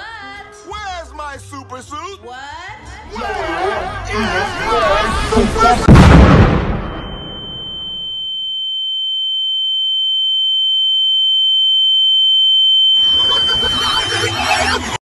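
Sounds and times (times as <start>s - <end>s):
high-pitched electronic ringing tone: 6.7s - 14.8s
fainter lower tone: 6.8s - 14.8s.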